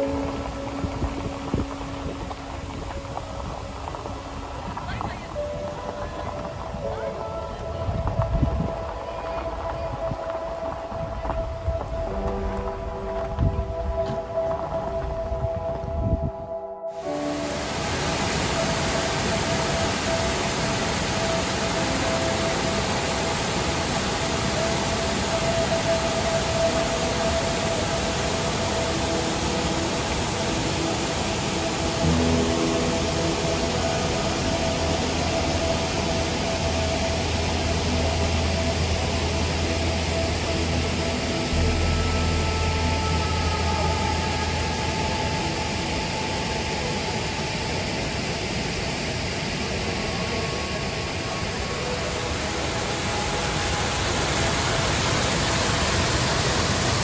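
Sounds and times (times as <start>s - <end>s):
waterfall rushing into a pool: 0.0s - 13.0s, 16.9s - 57.0s
low rumble: 0.0s - 16.9s, 32.0s - 46.2s.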